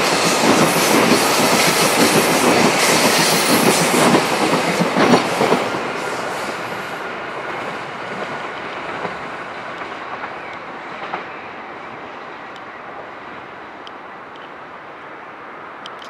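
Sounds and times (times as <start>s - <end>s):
train wheels rumbling on track: 0.0s - 16.0s
sharp clicks: 15.8s - 16.0s.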